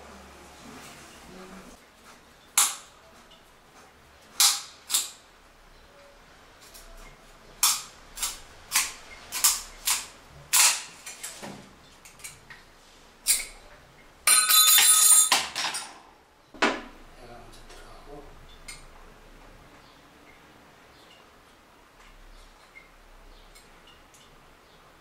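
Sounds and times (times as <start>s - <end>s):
metal ring clattering on ceramic: 14.2s - 16.0s.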